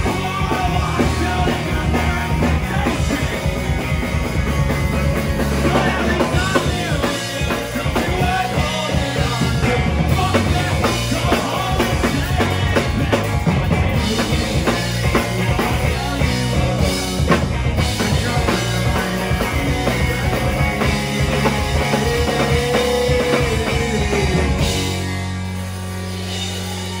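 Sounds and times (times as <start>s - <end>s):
bass guitar: 0.0s - 27.0s
drum kit: 0.0s - 27.0s
electric guitars: 0.0s - 27.0s.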